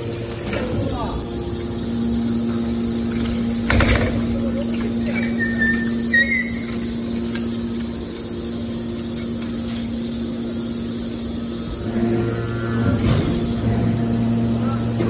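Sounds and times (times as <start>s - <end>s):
deeper hum: 0.0s - 15.0s
hydraulic power unit humming: 0.0s - 15.0s
short high squeak: 5.2s - 6.8s.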